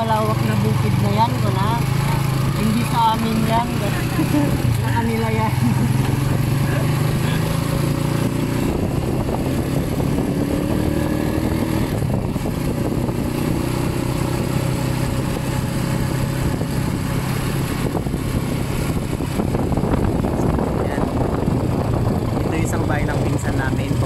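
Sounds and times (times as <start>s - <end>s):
motorcycle engine cruising: 0.0s - 24.0s
wind noise on microphone: 5.7s - 24.0s.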